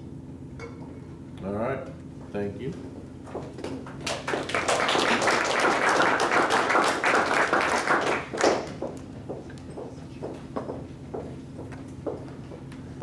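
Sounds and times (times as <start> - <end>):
audience applauding: 3.8 - 9.0.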